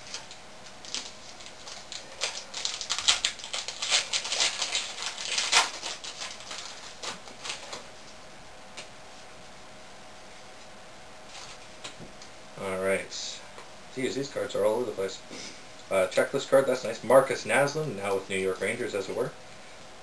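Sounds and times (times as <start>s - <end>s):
cards being shuffled: 0.0s - 7.9s.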